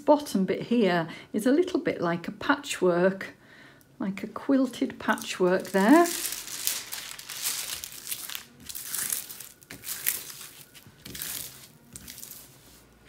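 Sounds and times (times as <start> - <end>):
plastic film crinkling: 5.0 - 13.0.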